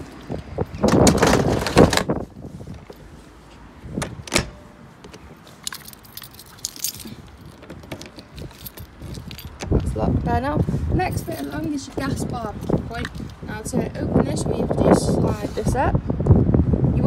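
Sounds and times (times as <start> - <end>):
key turning in a lock: 4.3 - 9.8
keys jangling: 5.1 - 9.9, 11.1 - 11.8, 12.6 - 13.4.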